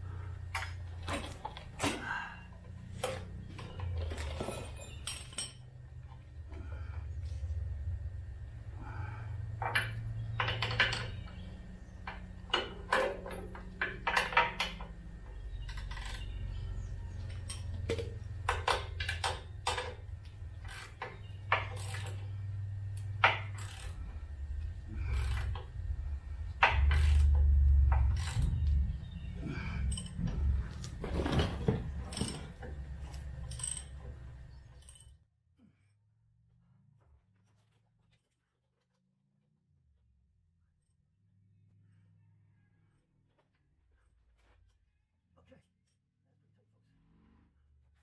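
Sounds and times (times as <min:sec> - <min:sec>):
steady low hum: 0:00.0 - 0:38.4
metal bolts clinking: 0:03.0 - 0:05.8, 0:12.0 - 0:16.6, 0:17.2 - 0:24.1, 0:26.6 - 0:35.2.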